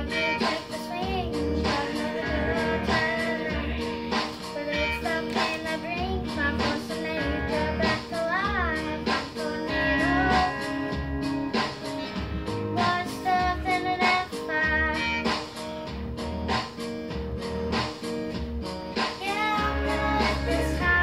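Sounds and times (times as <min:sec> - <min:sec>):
girl singing: 0:00.0 - 0:11.1, 0:12.6 - 0:15.3, 0:19.1 - 0:21.0
backing music with guitar: 0:00.0 - 0:21.0.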